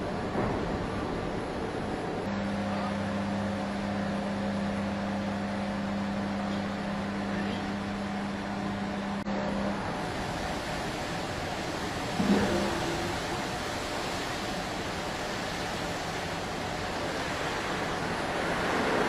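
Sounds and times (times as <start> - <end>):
low machine hum: 0.0 - 19.0
steady rushing hiss: 9.8 - 19.0.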